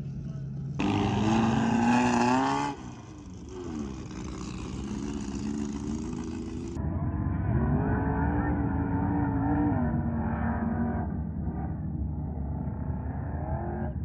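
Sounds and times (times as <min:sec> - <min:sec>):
vehicle engine revving hard: 0:00.8 - 0:06.8.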